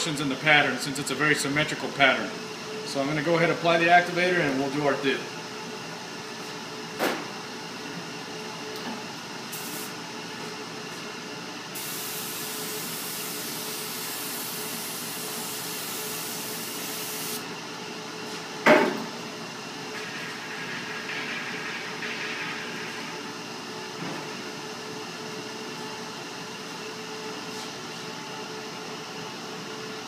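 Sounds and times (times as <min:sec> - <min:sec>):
air spray gun hissing: 0:09.5 - 0:10.0, 0:11.8 - 0:17.4.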